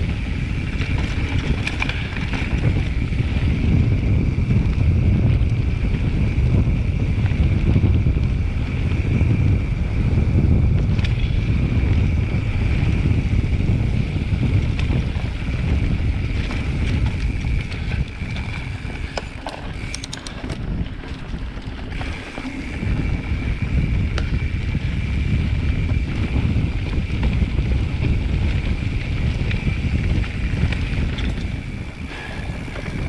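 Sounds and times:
bike tyres and frame rattling: 0.0 - 33.0
wind buffeting microphone: 0.0 - 33.0
sharp clicks and ticks: 16.3 - 21.2, 28.4 - 33.0.

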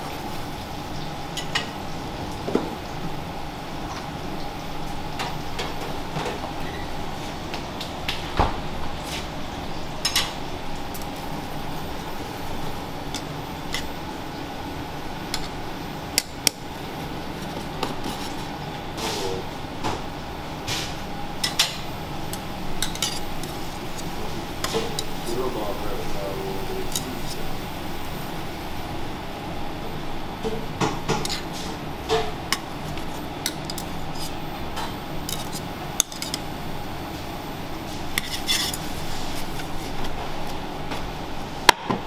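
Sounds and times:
kitchen hum: 0.0 - 42.0.

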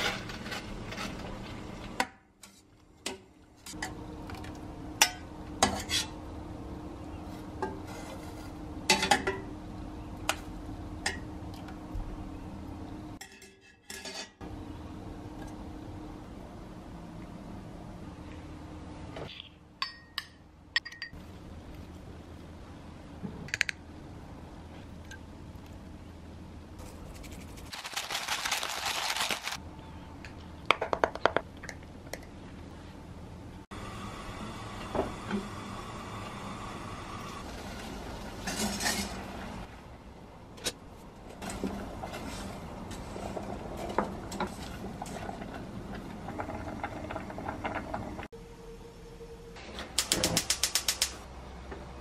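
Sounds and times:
dry spaghetti rattling into a pot: 27.7 - 29.6
water heating in a pot: 41.4 - 48.3.

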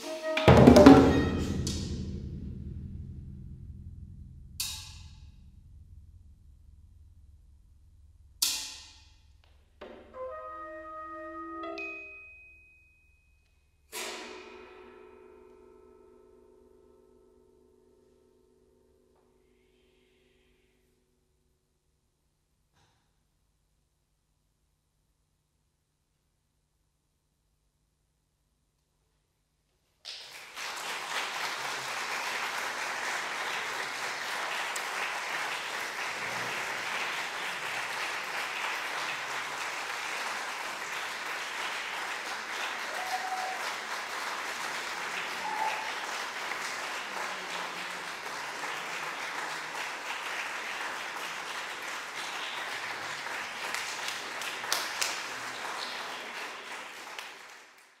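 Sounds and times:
audience applauding: 30.1 - 58.0.

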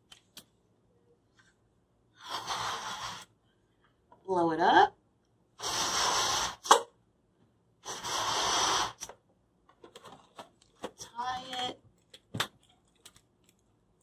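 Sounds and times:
rubbery balloon squeaks: 2.2 - 3.3, 5.6 - 6.9, 7.8 - 9.1
breaths blown into balloon: 2.2 - 3.4, 5.6 - 7.0, 7.8 - 9.2.

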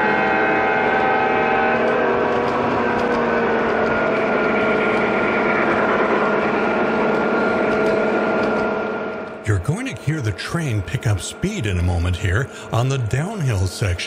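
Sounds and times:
wheels rattling on rails: 0.0 - 14.0.

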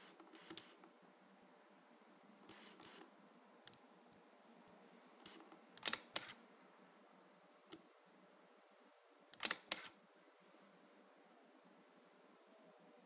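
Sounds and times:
camera shutter clacks: 5.8 - 6.4, 9.4 - 10.0.

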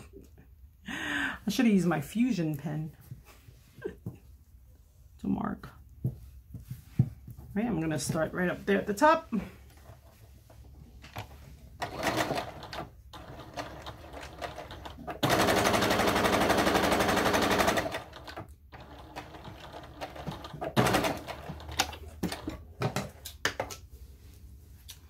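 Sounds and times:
sewing machine stitching: 11.8 - 22.6.

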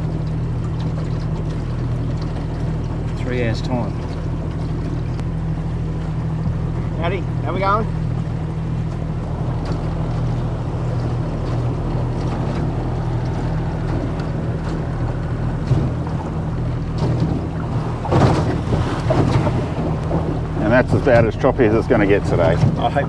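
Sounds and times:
boat motor humming: 0.0 - 23.0
water noise: 0.0 - 23.0
wind noise: 9.0 - 23.0.

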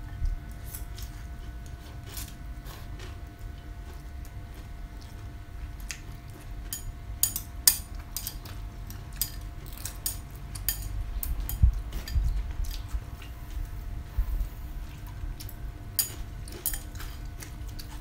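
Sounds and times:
crunchy chewing: 0.1 - 18.0
chopsticks clicking against bowls: 6.6 - 12.8, 15.4 - 18.0.

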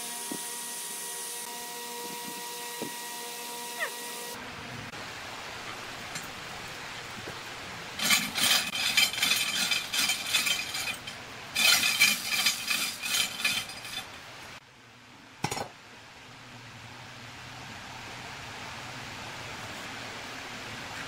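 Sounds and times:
steel chain rattling: 8.0 - 14.2.

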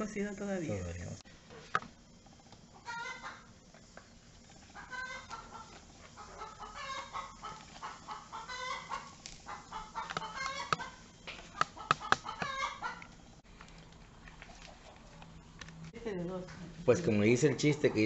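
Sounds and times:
chicken clucking: 2.8 - 3.5, 4.7 - 13.1.

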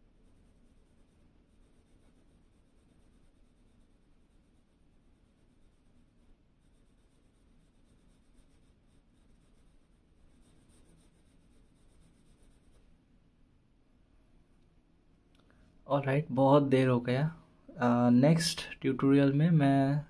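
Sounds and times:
pencil scratching on paper: 0.2 - 13.0.

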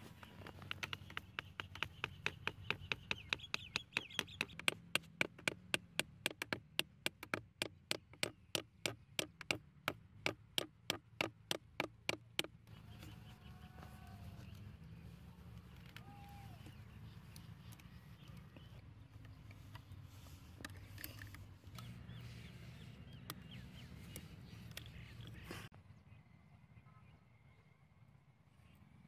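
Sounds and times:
hammer tapping wooden stick: 0.6 - 12.5.

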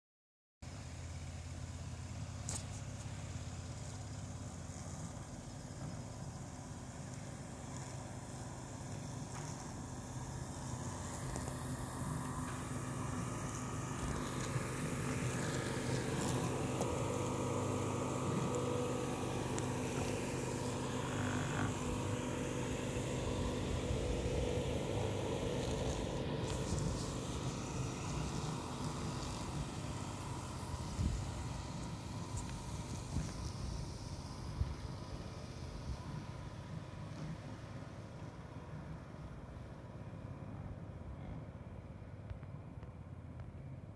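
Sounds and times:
robotic lawn mower motor hum: 2.4 - 39.9.

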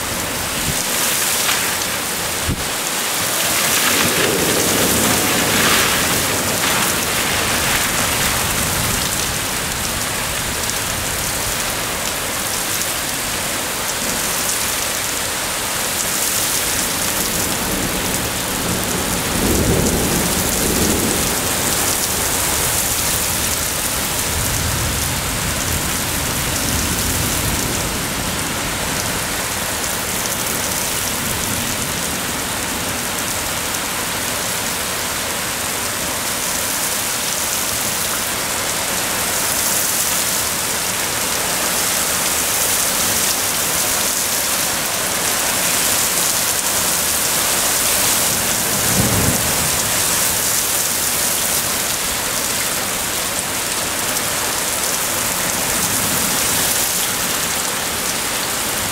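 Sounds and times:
heavy rain on pavement: 0.0 - 58.9
low thunder rumble: 0.1 - 12.4, 16.6 - 32.3, 47.3 - 51.1.

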